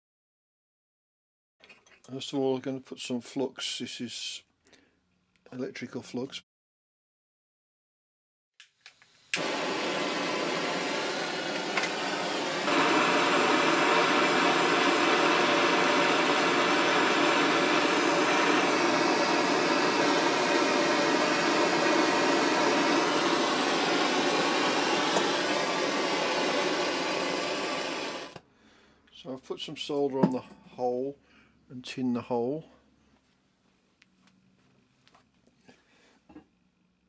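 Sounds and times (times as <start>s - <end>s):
blowtorch hissing: 9.2s - 28.4s.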